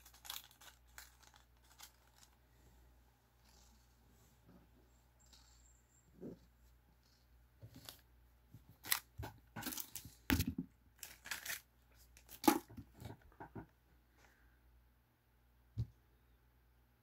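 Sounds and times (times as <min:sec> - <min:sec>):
plastic bag crinkling and tearing: 0:00.0 - 0:02.4, 0:11.0 - 0:12.7.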